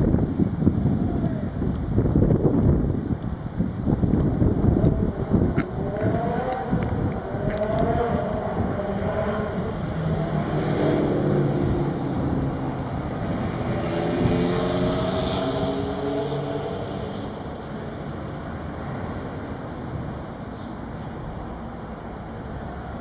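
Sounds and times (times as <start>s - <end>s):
wind buffeting microphone: 0.0s - 20.4s
motor vehicle passing: 4.6s - 19.6s.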